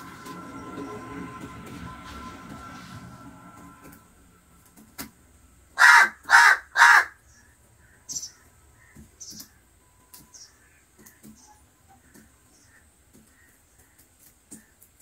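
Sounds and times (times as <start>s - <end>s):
crow cawing: 5.8s - 7.2s.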